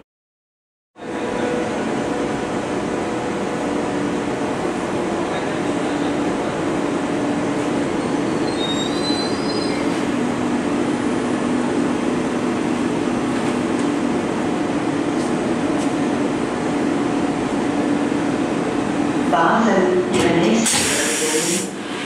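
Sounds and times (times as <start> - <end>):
electric train running hum: 1.0 - 22.0
high wheel squeal: 8.0 - 10.0.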